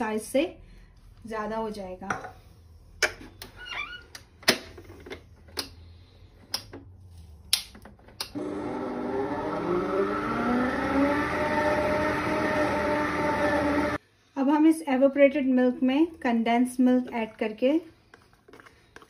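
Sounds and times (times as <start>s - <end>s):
stand mixer motor whining: 8.3s - 14.0s.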